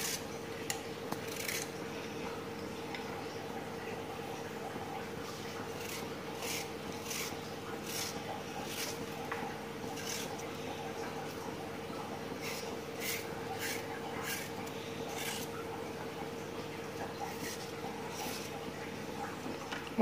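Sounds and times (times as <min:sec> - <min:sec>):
knife cutting raw potato: 0:00.0 - 0:01.8, 0:05.3 - 0:11.6, 0:12.3 - 0:15.6, 0:17.1 - 0:18.6.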